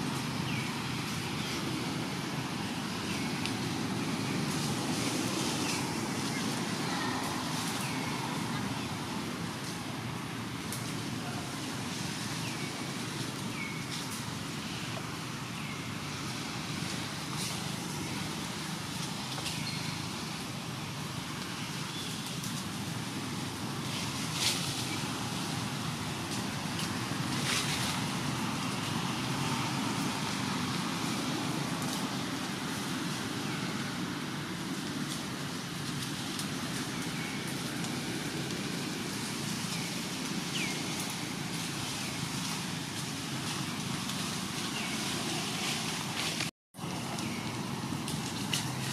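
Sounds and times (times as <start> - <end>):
forest ambience hiss and rumble: 0.0 - 48.9.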